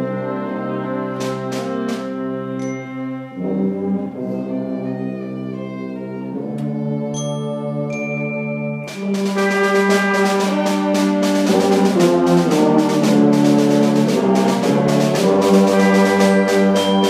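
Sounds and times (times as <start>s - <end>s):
wind ensemble playing brass chords: 0.0s - 7.9s, 8.6s - 17.0s.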